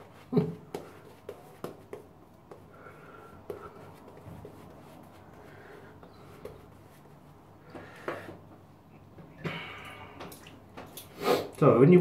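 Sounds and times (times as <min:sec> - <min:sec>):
brush scrubbing skin: 0:03.4 - 0:07.5.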